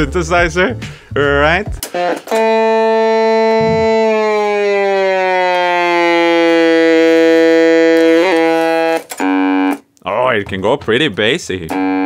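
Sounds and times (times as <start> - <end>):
toy synthesizer note sliding down: 2.4 - 9.0.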